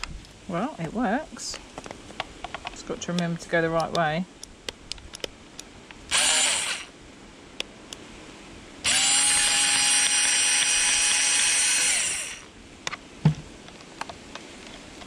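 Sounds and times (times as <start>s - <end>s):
electric screwdriver whirring: 6.1s - 6.9s, 8.9s - 12.5s.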